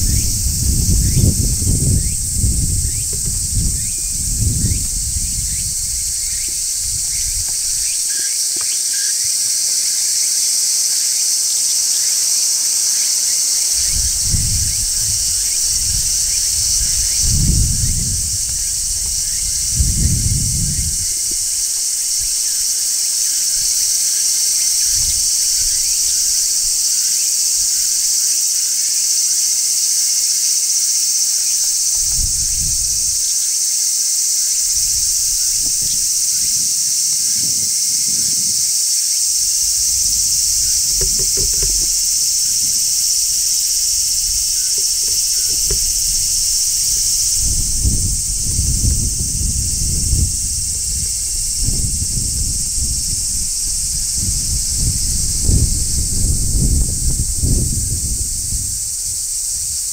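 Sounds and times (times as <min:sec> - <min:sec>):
low rumbles: 0:00.0 - 0:07.9, 0:39.4 - 0:58.3
cicadas shrilling: 0:00.0 - 0:59.9.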